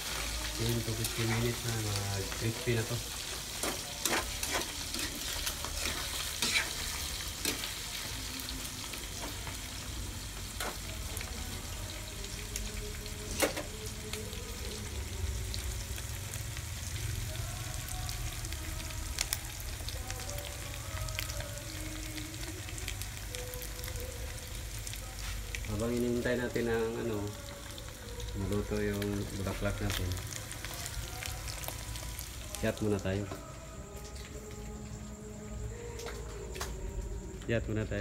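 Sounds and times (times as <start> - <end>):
meat sizzling in hot oil: 0.0 - 33.3
metal spatula scraping wok: 3.2 - 7.9.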